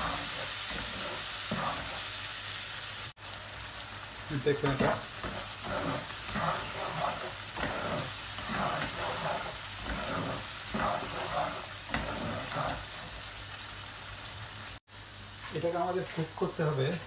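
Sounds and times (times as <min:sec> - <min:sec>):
spatula scraping frying pan: 0:00.0 - 0:02.2, 0:04.5 - 0:13.3
gravy sizzling in oil: 0:00.0 - 0:17.0.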